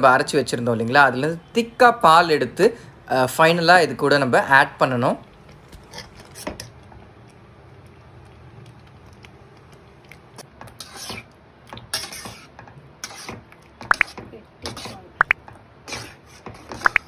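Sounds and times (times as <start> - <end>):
metal spatula scraping a pan: 5.8 - 6.8, 10.6 - 15.1, 15.8 - 17.0.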